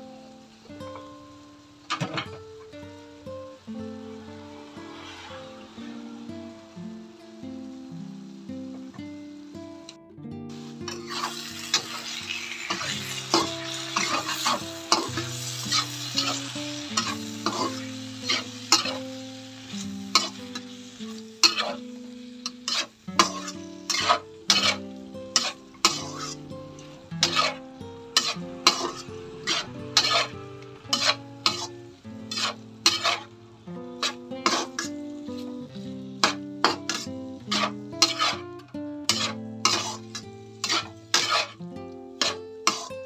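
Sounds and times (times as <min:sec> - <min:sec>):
food sizzling in a pan: 0:00.0 - 0:43.0
utensil clacking and scraping a pan: 0:10.9 - 0:19.1, 0:19.7 - 0:27.6, 0:28.2 - 0:33.3, 0:34.0 - 0:41.6, 0:42.2 - 0:42.9.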